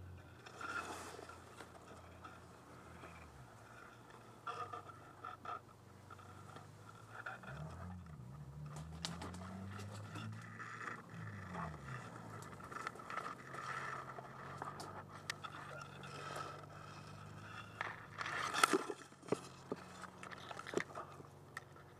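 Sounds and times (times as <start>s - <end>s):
grass rustling and scraping: 0.4s - 5.0s.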